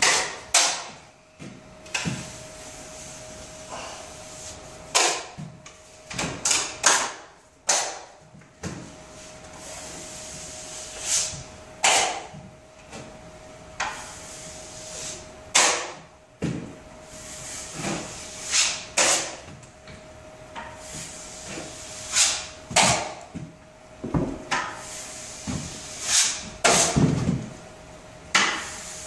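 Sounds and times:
drywall knife scraping compound: 0:00.0 - 0:00.9, 0:17.2 - 0:19.5, 0:20.8 - 0:23.2, 0:24.8 - 0:27.2.

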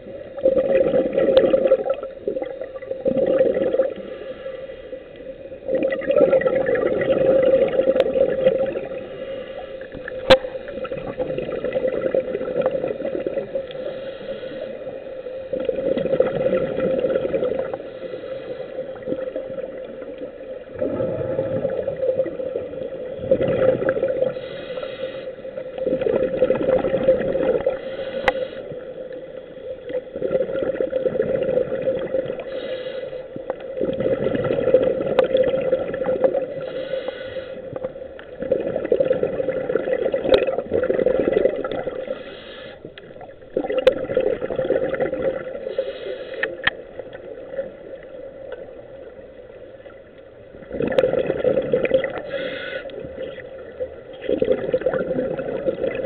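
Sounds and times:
diver exhaling bubbles underwater: 0:00.0 - 0:04.2, 0:05.6 - 0:13.9, 0:15.5 - 0:17.8, 0:19.0 - 0:24.4, 0:25.7 - 0:27.8, 0:29.9 - 0:32.5, 0:33.7 - 0:36.8, 0:37.6 - 0:42.2, 0:43.1 - 0:45.9, 0:50.6 - 0:52.3, 0:53.0 - 0:56.0
regulator inhale hiss: 0:03.8 - 0:05.3, 0:08.8 - 0:10.8, 0:13.5 - 0:15.5, 0:17.6 - 0:19.4, 0:24.2 - 0:25.8, 0:27.6 - 0:29.2, 0:32.4 - 0:33.6, 0:36.5 - 0:38.0, 0:42.0 - 0:43.2, 0:45.6 - 0:46.8, 0:52.2 - 0:53.2.

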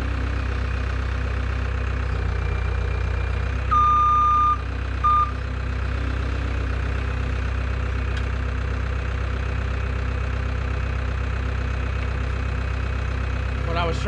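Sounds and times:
diesel engine idling: 0:00.0 - 0:14.0
back-up alarm beep: 0:03.7 - 0:05.4.

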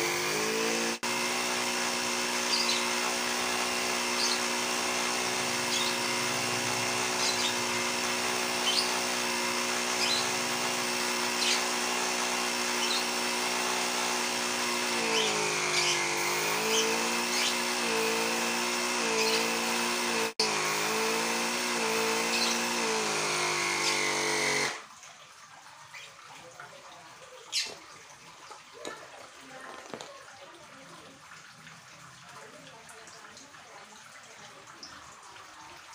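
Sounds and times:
air compressor running: 0:00.0 - 0:24.8.

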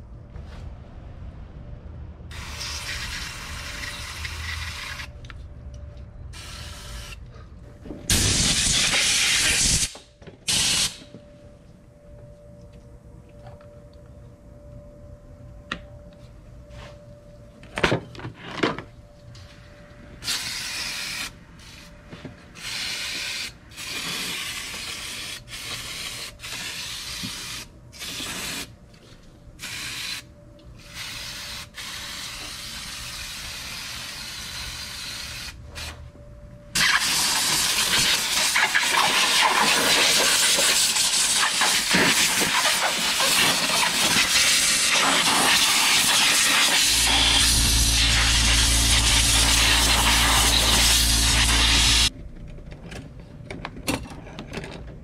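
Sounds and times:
aerosol spray hissing: 0:39.7 - 0:52.1.

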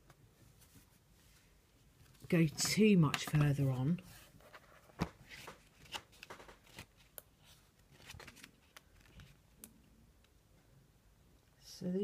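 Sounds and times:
cards clicking and rustling: 0:02.4 - 0:09.8.

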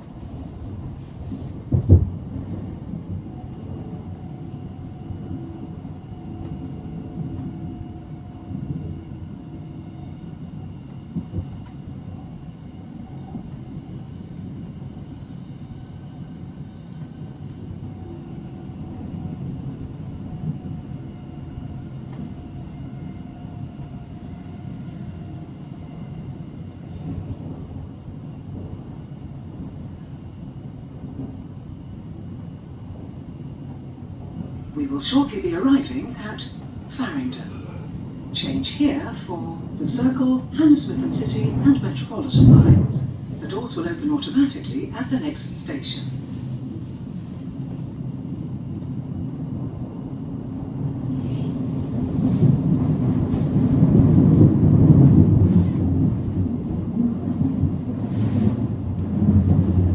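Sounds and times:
train wheels rumbling on rail: 0:00.0 - 0:59.9
train knocks: 0:01.3 - 0:04.4, 0:52.0 - 0:59.9.

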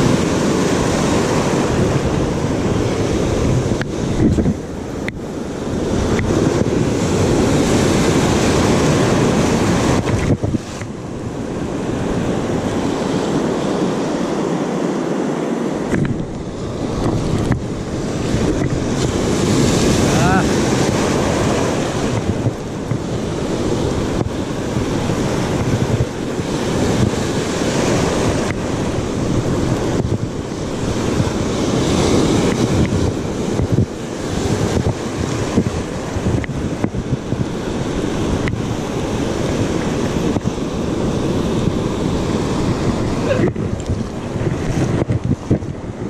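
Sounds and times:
ocean surf breaking: 0:00.0 - 0:46.0
wind buffeting microphone: 0:00.0 - 0:46.0.

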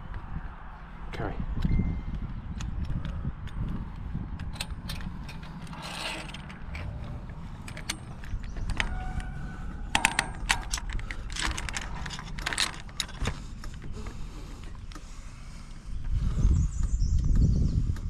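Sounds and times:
low wind rumble: 0:00.0 - 0:18.0
metallic clicks and clinks: 0:04.4 - 0:09.0, 0:09.9 - 0:13.8.

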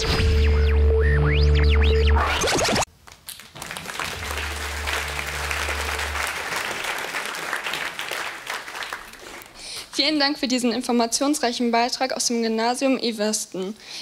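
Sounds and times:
music: 0:00.0 - 0:02.8, 0:04.0 - 0:06.8
audience clapping: 0:02.9 - 0:10.2.

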